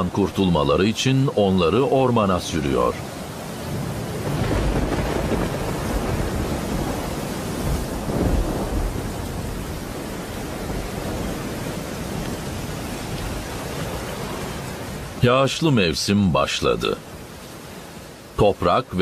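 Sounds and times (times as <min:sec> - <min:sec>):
steady rain: 0:00.0 - 0:19.0
rolling thunder: 0:03.6 - 0:14.0.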